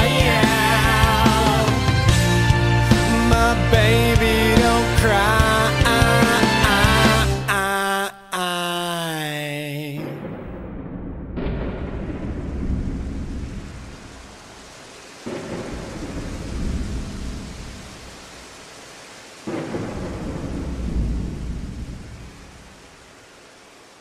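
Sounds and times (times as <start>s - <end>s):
steady rain: 0.0s - 7.6s, 11.8s - 24.0s
thunder rumbling: 10.0s - 18.7s, 19.3s - 23.1s.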